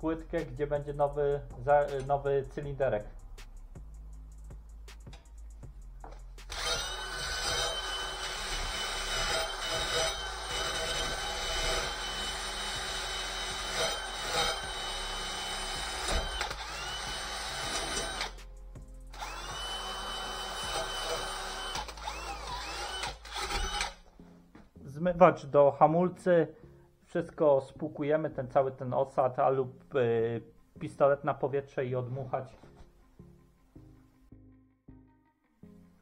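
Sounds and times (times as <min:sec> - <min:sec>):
drill wire brush scrubbing metal: 0:06.5 - 0:18.4, 0:19.2 - 0:23.8.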